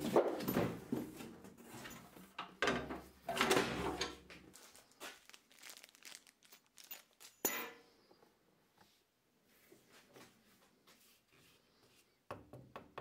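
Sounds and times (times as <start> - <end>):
cardboard and plastic rustling: 4.5 - 7.5
plastic bag handled with clicks: 4.6 - 7.5.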